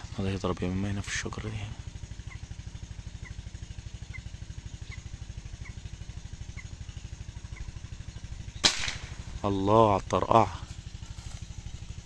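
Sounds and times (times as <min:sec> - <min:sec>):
engine running steadily: 0:00.0 - 0:12.0
air rifle shot: 0:08.6 - 0:09.4.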